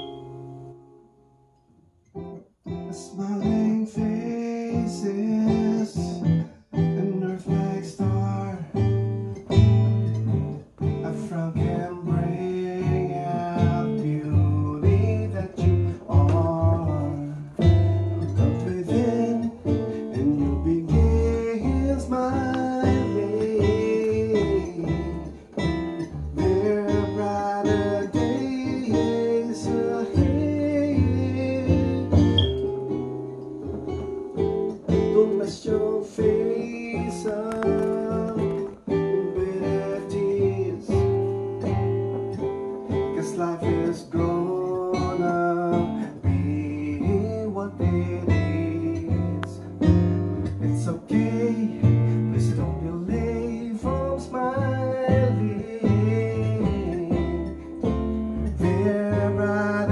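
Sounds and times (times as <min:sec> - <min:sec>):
electronic keyboard music: 0:13.1 - 0:59.9.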